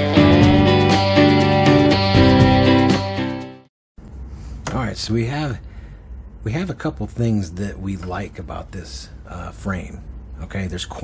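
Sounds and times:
strummed chords intro music: 0.0 - 3.7.

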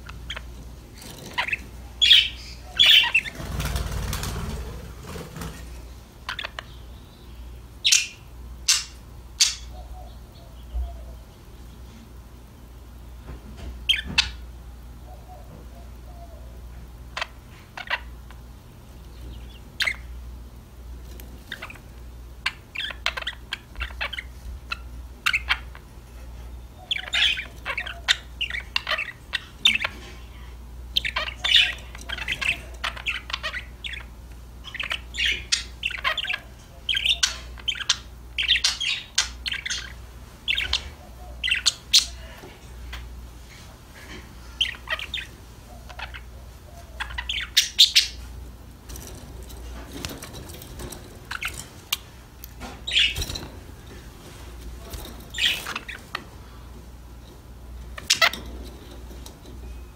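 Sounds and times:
budgerigars chirping: 0.0 - 4.8, 6.2 - 11.1, 17.1 - 18.4, 19.1 - 20.2, 21.4 - 25.9, 26.5 - 30.1, 30.9 - 43.1, 44.6 - 54.0, 54.6 - 56.8, 57.7 - 59.9.

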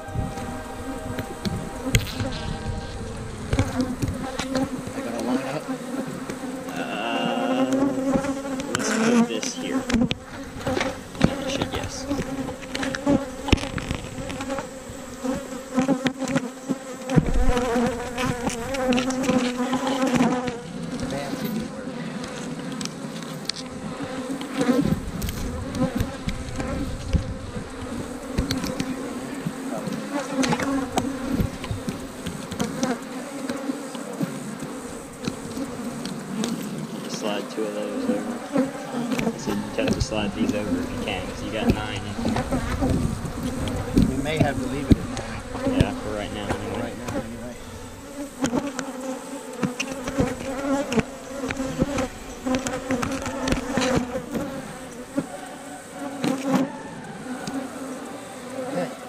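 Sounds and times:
wooden hive frames knocking: 0.0 - 6.7, 7.3 - 21.5, 23.9 - 37.3, 38.1 - 55.3
bees buzzing: 0.0 - 59.0.

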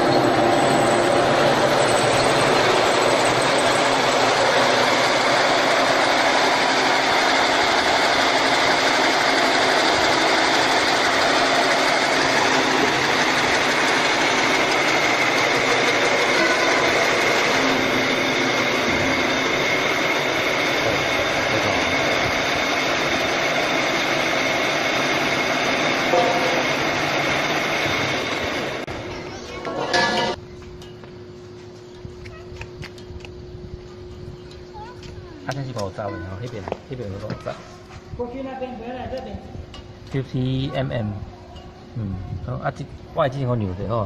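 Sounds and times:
hydraulic drilling machine running: 0.0 - 30.4.

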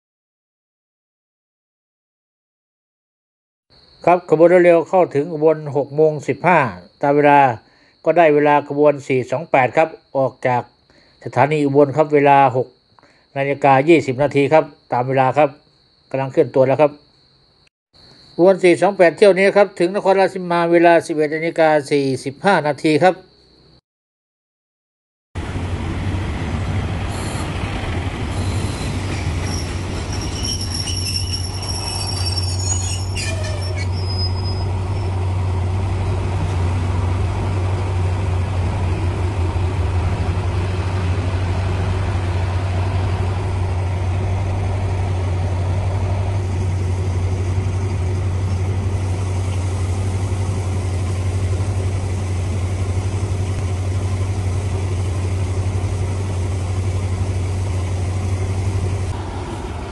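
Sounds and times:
low train rumble: 25.4 - 59.9
train wheels squealing on rails: 27.0 - 35.5.

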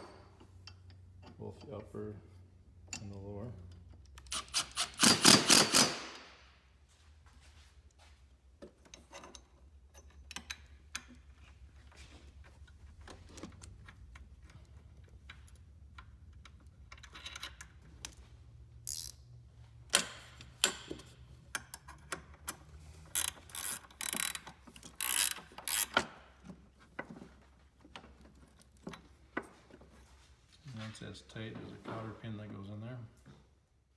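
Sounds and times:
ratchet wrench clicking: 4.1 - 6.2, 18.8 - 19.3, 23.1 - 26.1.

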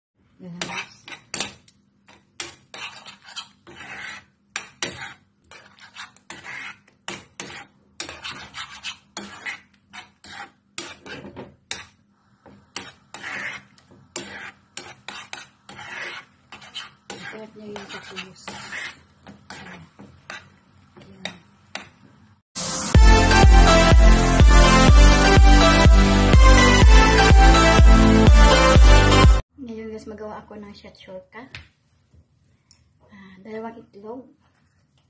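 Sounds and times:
metal spoon scraping frying pan: 0.6 - 20.6.

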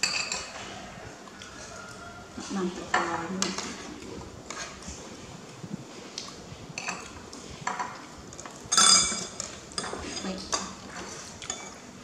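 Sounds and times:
spoons clinking on ceramic plate: 0.0 - 0.5, 8.7 - 10.6.

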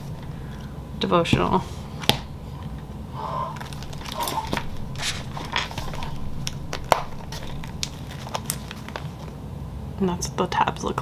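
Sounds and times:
planner pages rustling: 3.6 - 9.4.

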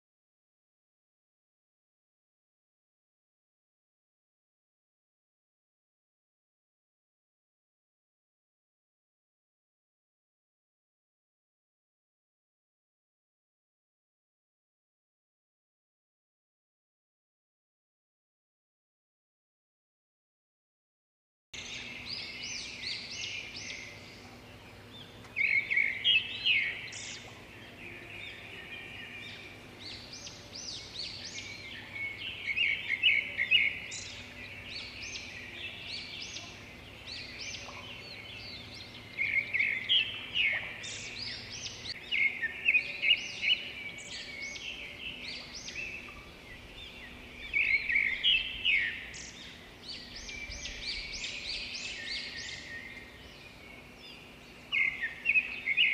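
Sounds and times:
faint steady hum: 21.6 - 55.9
small birds chirping: 21.6 - 55.9.

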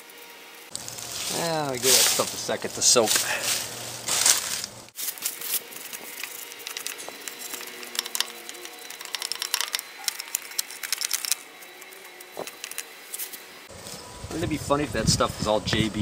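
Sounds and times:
brush scrubbing metal: 1.0 - 13.5.

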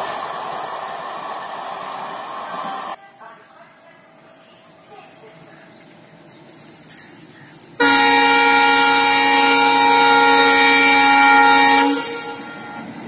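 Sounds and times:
train running noise: 0.0 - 13.0
train air horn blast: 7.8 - 13.0.

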